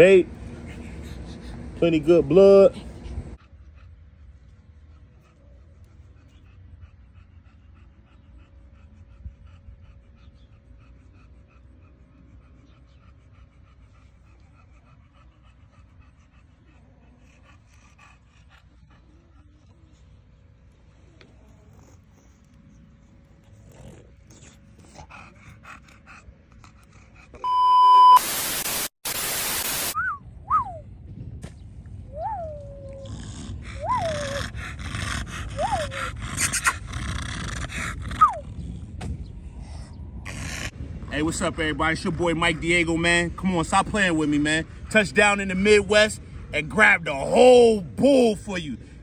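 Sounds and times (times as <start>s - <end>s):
steady low rumble: 0.0s - 27.4s, 30.0s - 48.0s
dog panting: 0.0s - 27.5s, 32.8s - 49.0s
steady hiss: 28.2s - 30.0s
dog whining: 32.1s - 38.7s.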